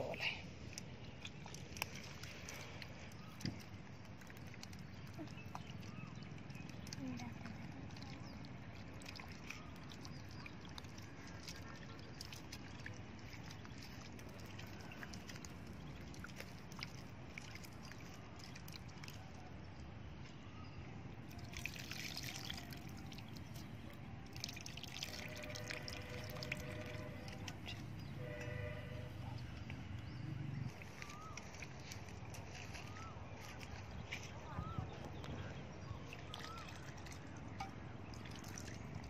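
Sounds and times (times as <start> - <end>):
hands squeezing pulp in water: 0.6 - 19.6, 21.2 - 28.7, 29.3 - 39.0
liquid dripping: 0.6 - 19.7, 21.2 - 28.5, 35.2 - 39.0.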